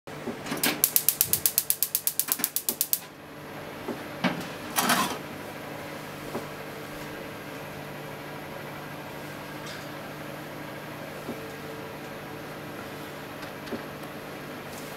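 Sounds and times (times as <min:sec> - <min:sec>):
gas burner rushing: 0:00.4 - 0:03.1
spark igniter clicking rapidly: 0:00.6 - 0:03.1.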